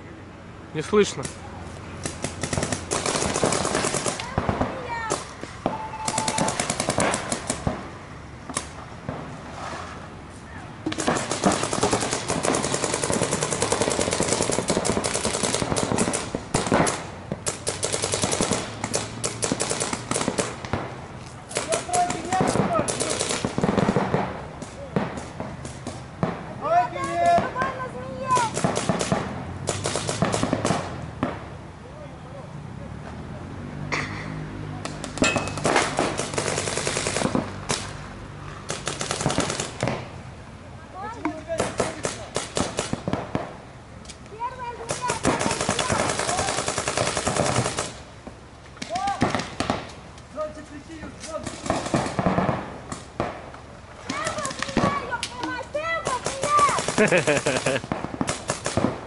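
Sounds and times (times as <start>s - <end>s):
paintball markers firing: 5.1s - 7.8s, 10.9s - 20.9s, 54.1s - 59.0s.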